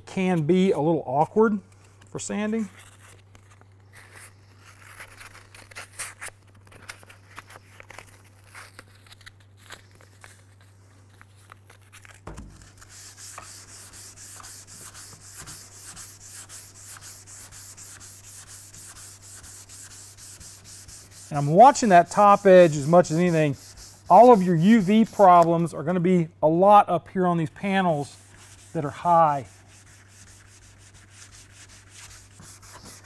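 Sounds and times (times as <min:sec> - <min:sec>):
sandpaper rustling and tapping: 0:12.0 - 0:25.7, 0:28.0 - 0:33.0
sanding block rubbing strokes: 0:12.5 - 0:25.7, 0:27.6 - 0:33.0.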